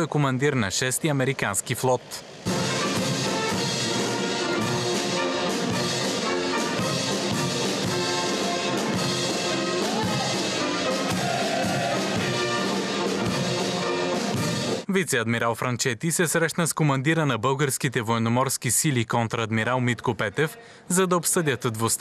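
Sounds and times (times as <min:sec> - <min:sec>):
brass band playing a march: 0:02.4 - 0:14.8.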